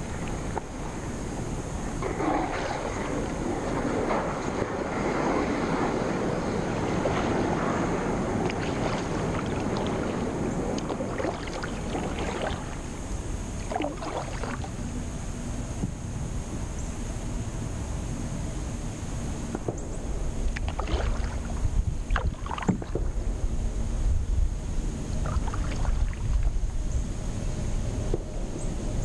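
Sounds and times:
paddle splashing water: 0:00.0 - 0:15.0, 0:19.5 - 0:23.5, 0:25.2 - 0:26.8
wind rumble on microphone: 0:00.0 - 0:29.0.

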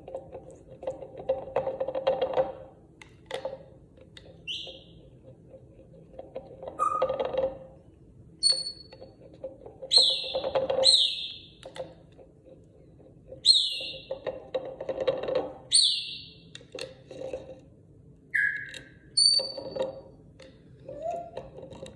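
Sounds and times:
parrot whistling: 0:06.8 - 0:07.2, 0:15.7 - 0:16.3, 0:18.3 - 0:19.6.

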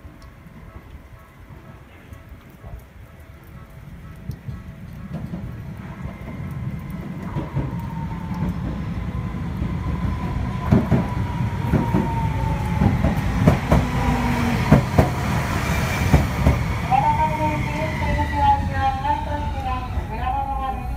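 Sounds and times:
tram passing with whine: 0:00.0 - 0:20.9
wheels clacking over rail joints: 0:10.6 - 0:20.0.

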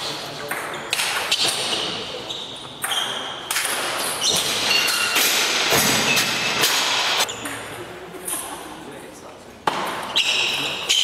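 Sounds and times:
shoe squeaks on floor: 0:00.7 - 0:05.2, 0:07.2 - 0:07.6, 0:10.1 - 0:11.0.

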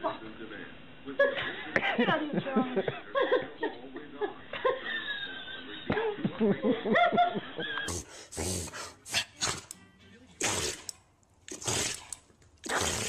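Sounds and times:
person laughing: 0:04.6 - 0:08.1.

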